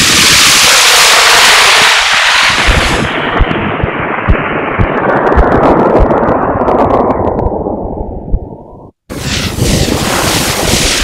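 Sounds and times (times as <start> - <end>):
sharp crackles: 0.0 - 11.0
low thumps: 2.6 - 9.0.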